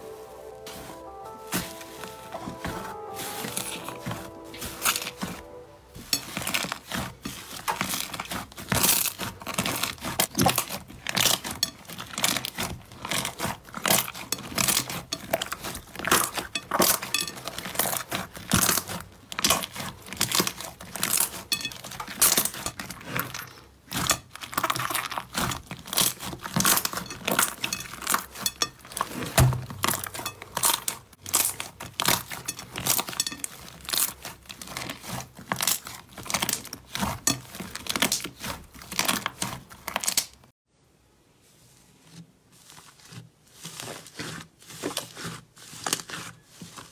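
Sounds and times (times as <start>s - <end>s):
hands kneading crackling slime: 0.0s - 40.5s, 41.4s - 46.9s.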